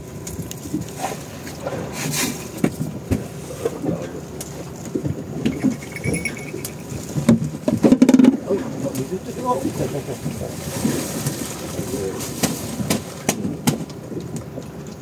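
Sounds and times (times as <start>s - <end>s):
knocks and clatter on boat: 0.0s - 15.0s
low background hum: 0.0s - 15.0s
thin high whine: 5.4s - 7.3s.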